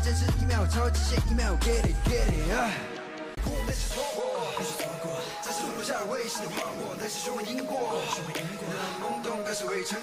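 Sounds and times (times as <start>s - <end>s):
deep bass beat: 0.0s - 2.6s
vocals over beat: 0.0s - 10.0s.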